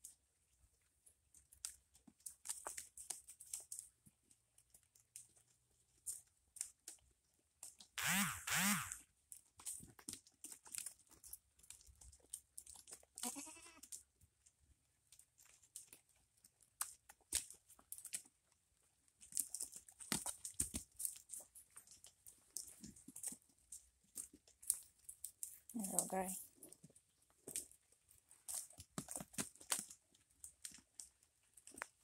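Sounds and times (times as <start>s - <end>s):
light clicks and crackles: 0.0s - 8.0s, 9.1s - 32.0s
goats bleating: 13.2s - 13.8s.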